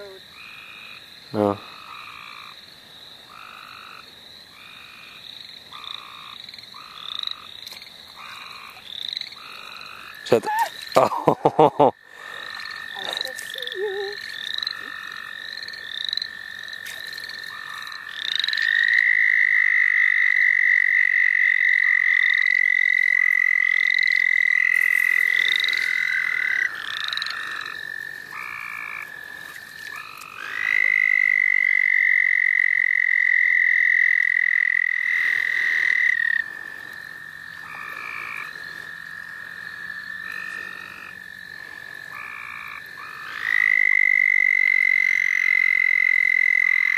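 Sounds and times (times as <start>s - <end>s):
distant toads trilling: 0.0s - 46.9s
frogs short rising calls: 0.0s - 46.9s
toad calling long trills: 12.0s - 46.9s.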